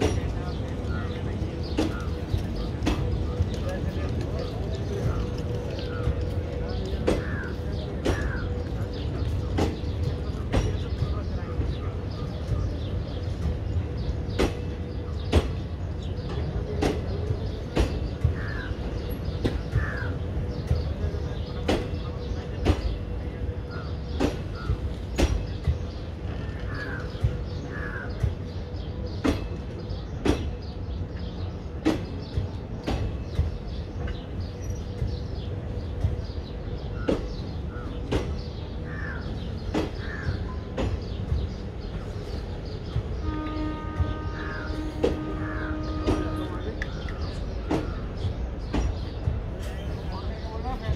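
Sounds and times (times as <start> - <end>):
crows cawing: 19.7 - 20.2.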